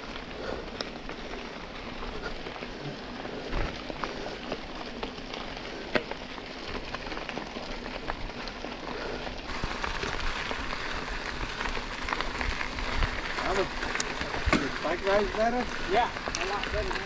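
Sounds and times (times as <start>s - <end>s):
bike tyres rolling on gravel: 0.0s - 17.0s
stones popping: 9.5s - 17.0s.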